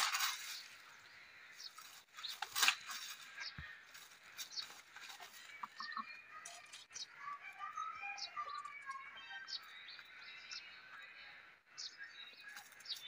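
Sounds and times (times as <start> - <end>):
chickens scratching in straw: 1.8 - 6.0.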